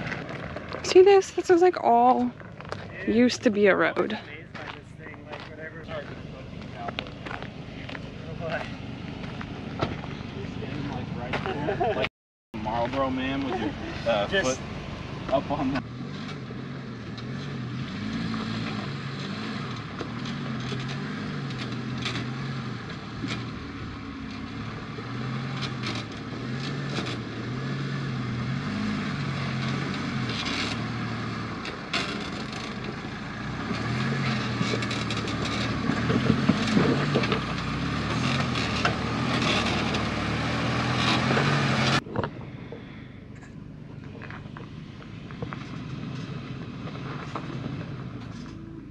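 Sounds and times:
tyres crunching over rock: 2.3s - 3.2s
engine running at low revs: 3.8s - 48.9s.

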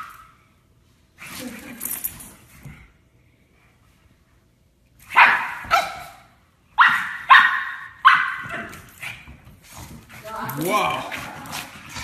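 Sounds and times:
dog barking sharply: 6.8s - 8.5s.

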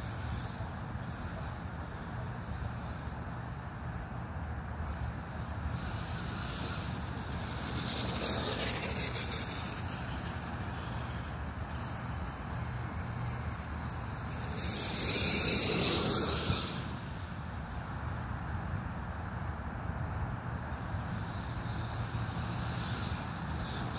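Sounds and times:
electric motor whining: 5.4s - 17.4s.

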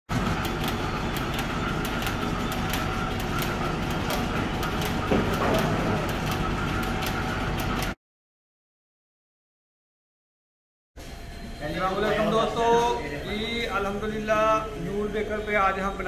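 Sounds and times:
machinery humming: 0.1s - 8.0s, 11.0s - 16.0s
rapid mechanical clicking: 0.1s - 8.0s.

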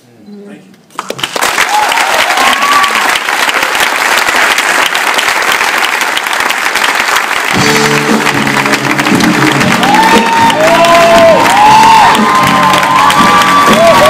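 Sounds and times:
audience applauding: 1.0s - 14.0s
instrumental music: 7.5s - 11.2s.

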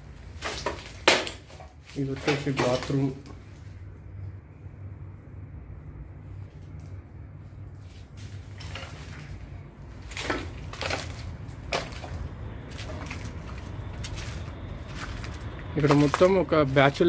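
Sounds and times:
low steady rumble: 3.2s - 17.0s
footsteps crunching on dry leaves: 10.0s - 17.0s.

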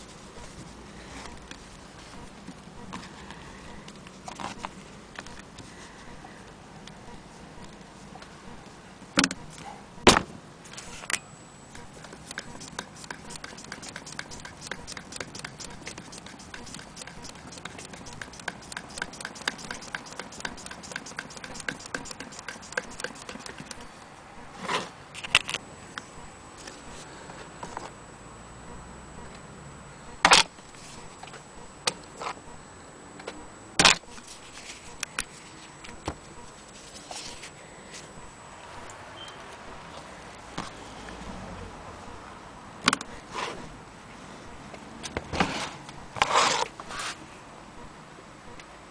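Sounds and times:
sewing machine ticking: 11.8s - 23.9s.

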